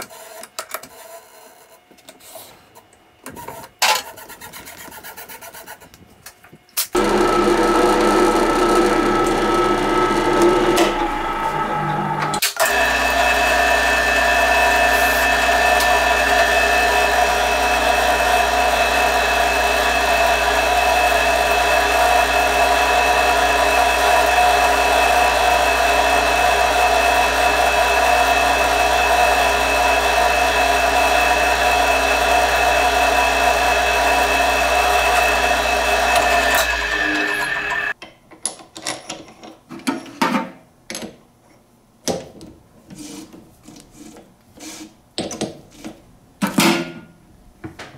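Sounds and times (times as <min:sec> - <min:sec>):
drill press drilling aluminium: 0:07.0 - 0:38.0.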